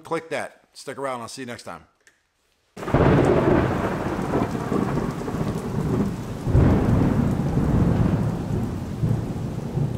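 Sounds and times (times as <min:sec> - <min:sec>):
heavy rain: 0:02.8 - 0:09.9
rolling thunder: 0:02.8 - 0:09.9.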